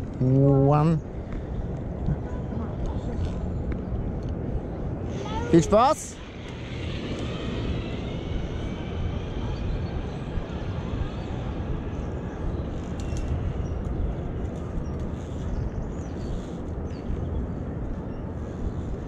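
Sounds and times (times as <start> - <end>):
faint trolley whine: 0.0 - 19.0
zip-line trolley rumbling: 1.6 - 16.7.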